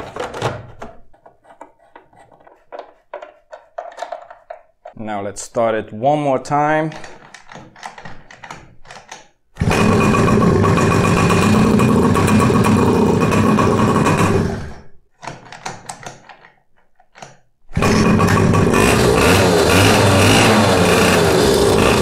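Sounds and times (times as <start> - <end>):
small two-stroke engine running: 9.6 - 14.8, 17.8 - 22.0.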